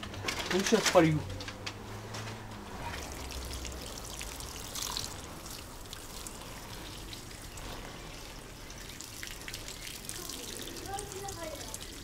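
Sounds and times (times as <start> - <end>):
water trickling onto soil: 2.8 - 12.0
water splash: 2.9 - 11.8.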